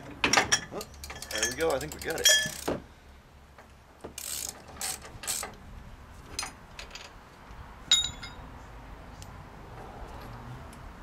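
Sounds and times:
ringing metal clink: 0.5s - 2.6s, 7.9s - 8.5s
hand ratchet clicking: 4.2s - 5.6s.

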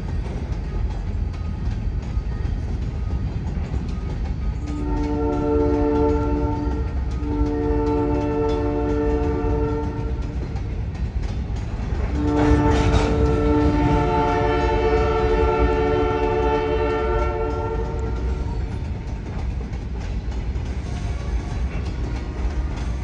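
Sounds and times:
freight train rumbling past: 0.0s - 23.0s
locomotive air horn blasts: 4.7s - 10.4s, 12.1s - 18.5s.

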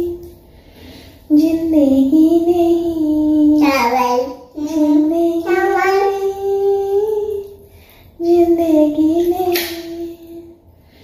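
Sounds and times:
child singing: 1.3s - 7.5s, 8.2s - 10.5s.

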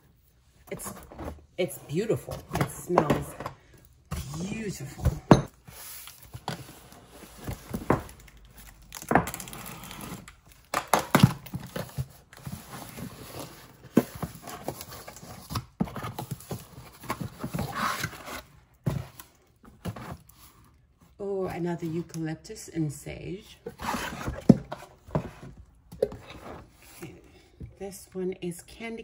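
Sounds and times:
cardboard scraping and rustling: 23.7s - 27.0s.

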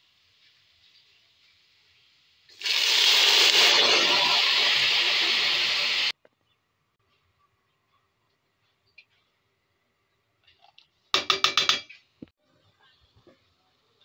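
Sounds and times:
water sizzling in hot pot: 0.0s - 6.2s.

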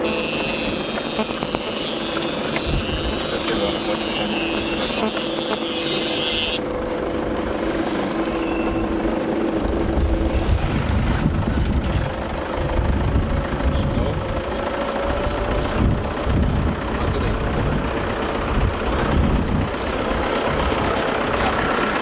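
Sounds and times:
road and tyre noise: 0.0s - 22.0s
heavy low rumble: 6.6s - 22.0s.

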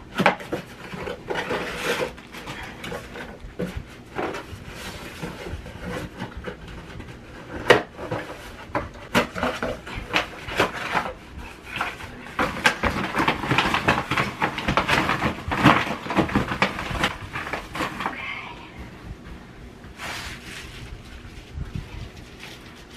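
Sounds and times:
cardboard box tearing and rustling: 7.4s - 18.1s.

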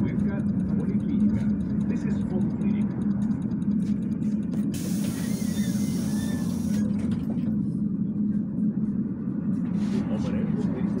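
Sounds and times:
trolleybus humming: 0.0s - 11.0s
hiss: 4.7s - 6.9s.

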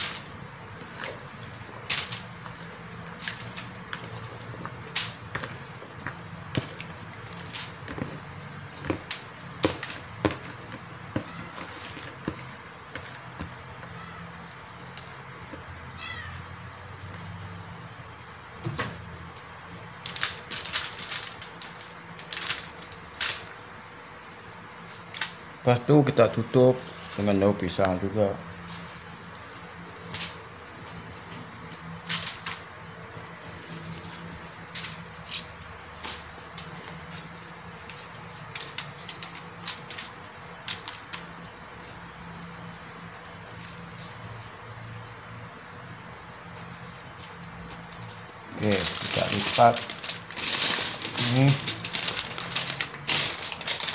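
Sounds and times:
leaf and foil crackling: 0.0s - 12.6s, 19.9s - 23.6s, 24.9s - 29.0s, 33.2s - 42.1s, 46.6s - 53.9s
cat meowing: 14.0s - 14.3s, 16.0s - 16.4s
foil and leaf crinkling: 20.0s - 23.5s, 25.7s - 29.0s, 46.6s - 53.9s.

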